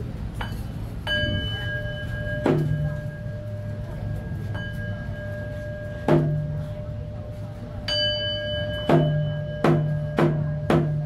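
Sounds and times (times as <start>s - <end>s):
steady low hum: 0.0s - 11.0s
bowl bell ringing: 0.4s - 11.0s
hand drum thud: 6.0s - 6.6s, 8.9s - 11.0s.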